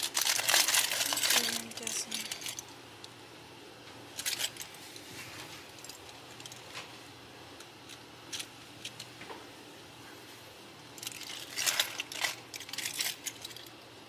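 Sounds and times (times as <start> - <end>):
small objects clicking and rattling: 0.0 - 2.7, 4.2 - 4.7, 11.0 - 13.8.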